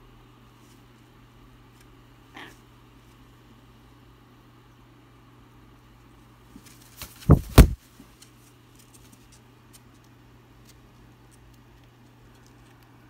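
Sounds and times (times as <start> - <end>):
loud thumps: 7.2 - 7.8.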